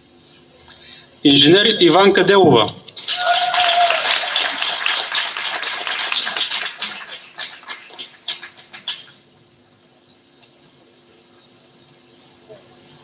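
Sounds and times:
crowd applauding: 3.0 - 9.2.

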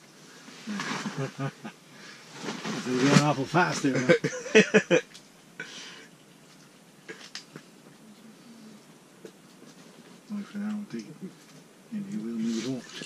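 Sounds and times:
man's voice: 2.9 - 5.0.

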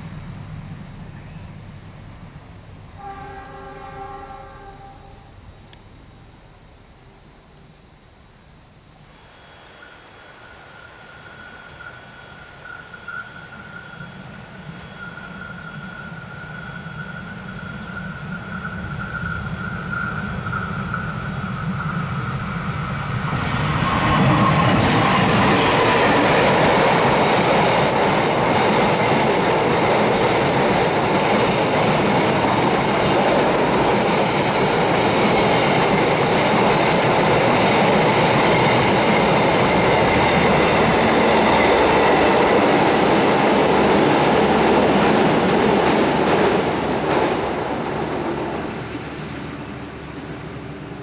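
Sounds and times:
train wheels rumbling on bridge: 10.5 - 51.0.

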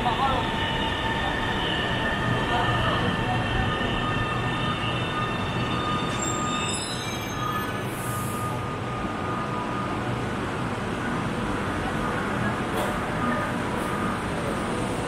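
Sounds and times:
train wheels rumbling on rail: 0.0 - 15.0
high brake squealing: 0.6 - 8.8.

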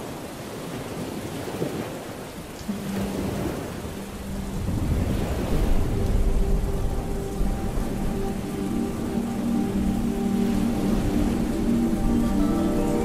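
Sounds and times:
steady rain: 0.0 - 13.0
slow music of sustained notes: 2.6 - 13.0
rumble of thunder: 4.1 - 9.2.

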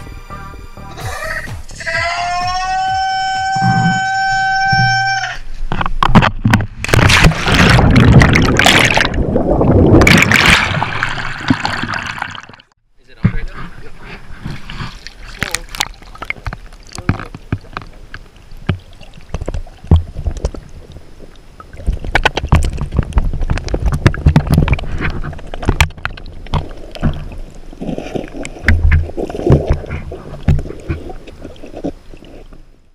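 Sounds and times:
underwater water rushing and bubbling: 6.1 - 12.7, 14.0 - 32.9.

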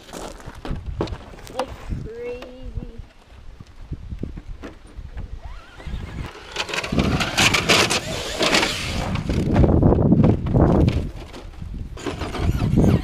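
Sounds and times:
rc truck motor whining: 5.4 - 9.5, 12.0 - 13.0.

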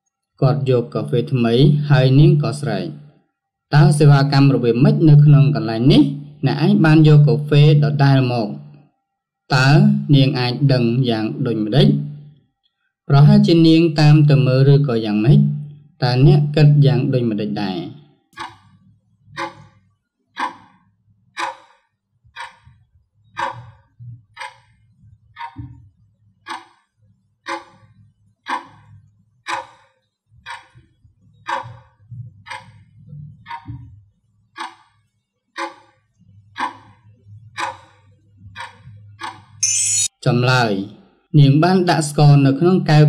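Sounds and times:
clock ticking: 13.2 - 19.8, 20.4 - 25.8, 26.4 - 33.9, 34.5 - 35.0, 35.6 - 40.2.

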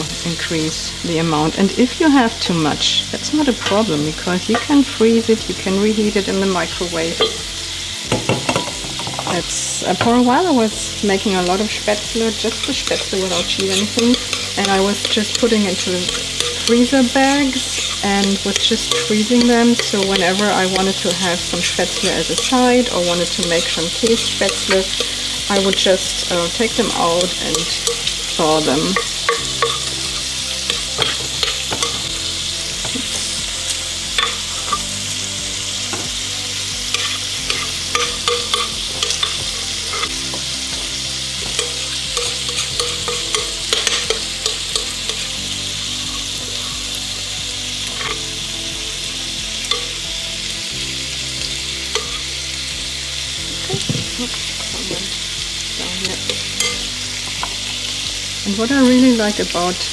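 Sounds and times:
stovetop sizzling hiss: 0.0 - 59.9
metal spoon scraping glass bowl: 12.5 - 20.9, 27.2 - 29.9, 41.6 - 45.3.

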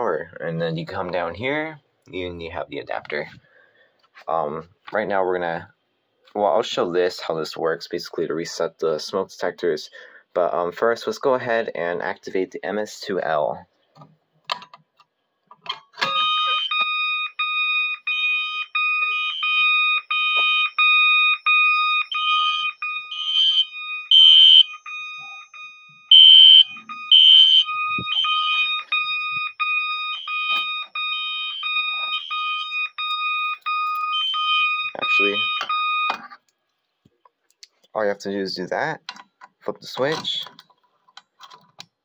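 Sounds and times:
pulsing electronic fire alarm horn: 16.1 - 36.1.

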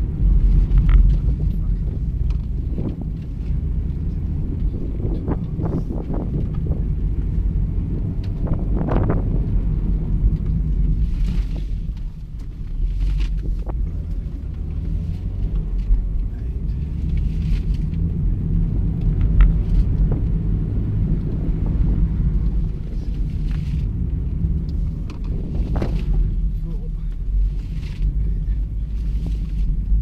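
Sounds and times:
car engine and road rumble: 0.0 - 30.0.

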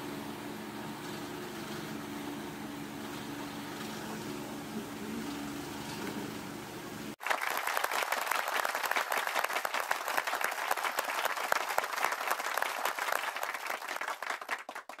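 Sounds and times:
crowd applauding: 7.2 - 15.0.

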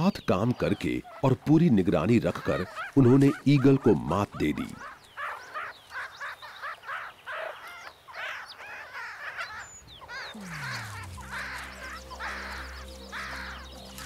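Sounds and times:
meerkats chirping: 0.0 - 14.0
low hum: 10.3 - 14.0.

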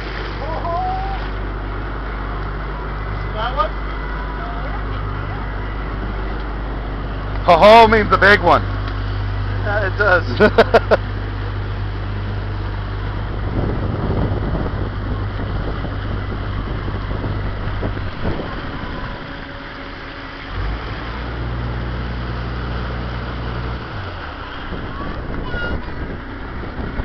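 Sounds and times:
motorboat engine hum: 0.0 - 27.0
rushing water: 0.0 - 27.0
wind on microphone: 12.8 - 19.6, 22.6 - 27.0.

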